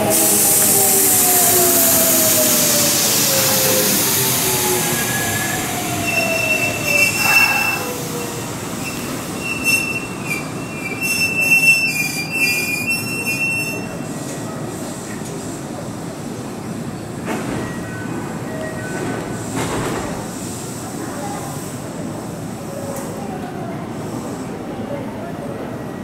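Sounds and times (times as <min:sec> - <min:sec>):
train wheels and brakes squealing: 0:00.0 - 0:14.9.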